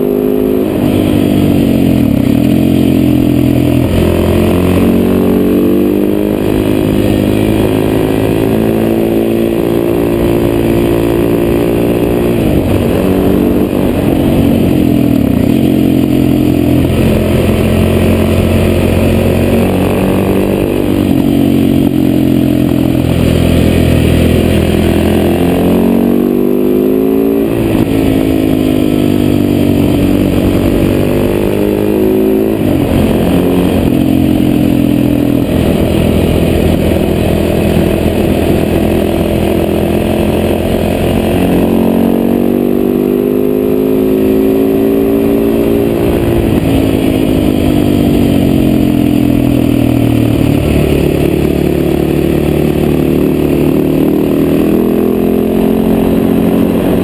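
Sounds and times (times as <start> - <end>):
motorcycle engine revving: 0.0 - 57.0
wind rush over microphone: 45.4 - 48.6.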